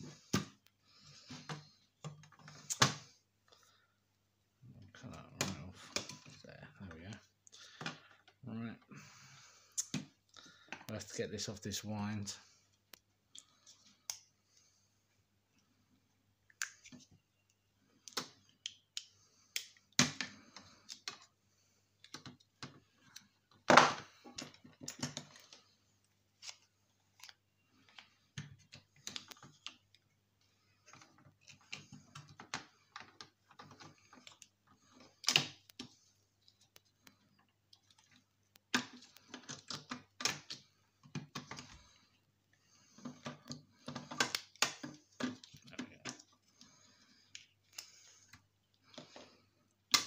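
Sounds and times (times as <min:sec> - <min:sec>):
clicks and rattles of wires: 0:22.0 - 0:50.0.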